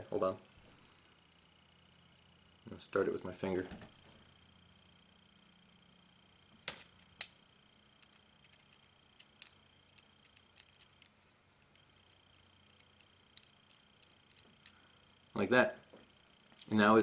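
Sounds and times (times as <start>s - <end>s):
small metal parts clicking: 8.0s - 11.1s, 12.0s - 14.8s.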